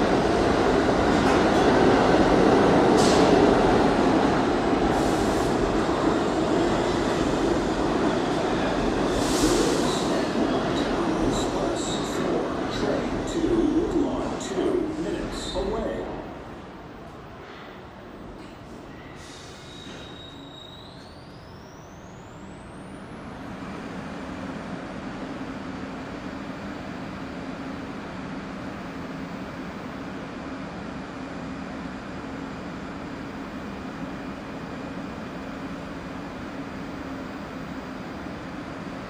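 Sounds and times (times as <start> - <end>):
low hum of train equipment: 0.0 - 39.0.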